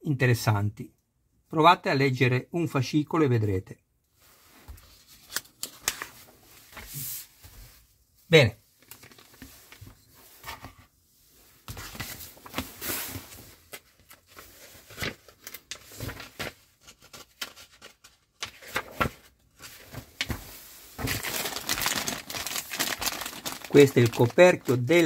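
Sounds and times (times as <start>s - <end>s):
plastic and card rustling: 4.7s - 7.2s, 8.7s - 10.8s, 11.6s - 25.0s.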